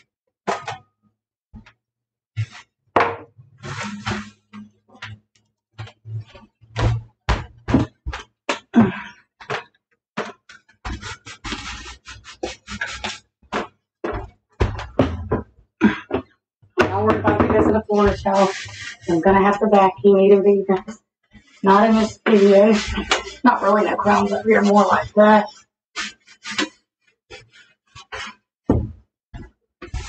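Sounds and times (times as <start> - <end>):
household items knocking and clattering: 0.5 - 0.9, 3.0 - 5.2, 5.8 - 19.9, 27.4 - 30.0.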